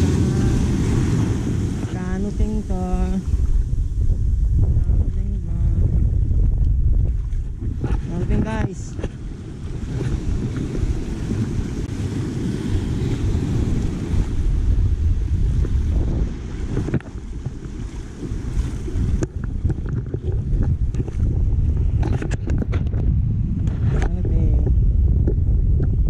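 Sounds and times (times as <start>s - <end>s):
small waves washing over rocks: 0.0s - 3.7s, 7.0s - 21.4s
wind buffeting microphone: 0.0s - 26.0s.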